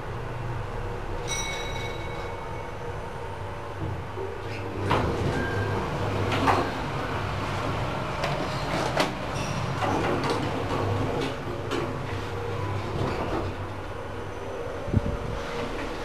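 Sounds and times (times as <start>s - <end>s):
elevator ride hum: 0.0s - 16.0s
elevator floor bell chime: 1.2s - 3.3s, 5.2s - 6.9s
sliding doors clunking and rattling: 3.7s - 14.3s, 14.9s - 16.0s.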